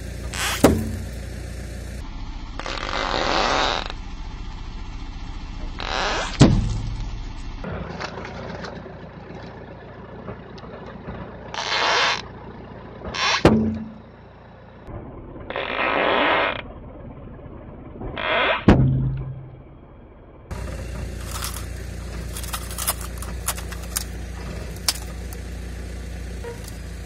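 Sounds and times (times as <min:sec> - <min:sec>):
balloon and crunchy object crushed: 0:21.2 - 0:25.4.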